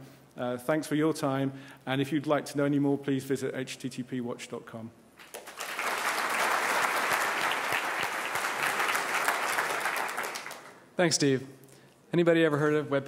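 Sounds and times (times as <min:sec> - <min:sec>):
audience applauding: 0:05.2 - 0:10.8.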